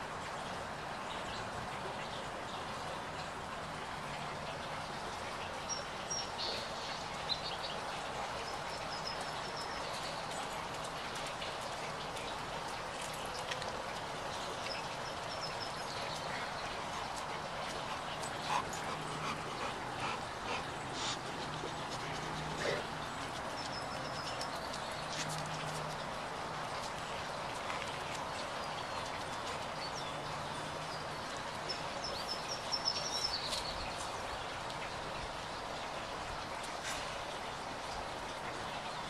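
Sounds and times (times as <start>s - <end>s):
dog sniffing: 16.4s - 23.0s.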